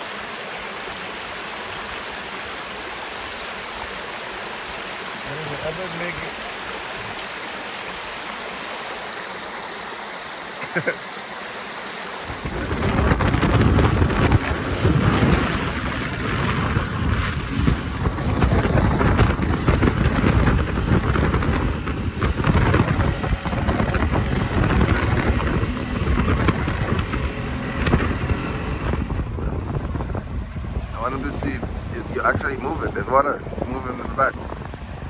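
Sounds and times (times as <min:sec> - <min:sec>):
outboard motor: 0:00.0 - 0:35.0
rushing boat wake: 0:00.0 - 0:35.0
wind buffeting microphone: 0:12.2 - 0:35.0.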